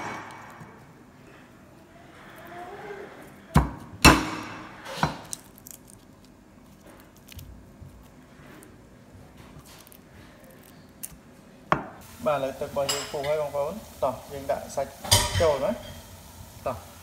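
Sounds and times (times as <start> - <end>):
garlic peeling clicks and rustles: 5.0 - 11.5.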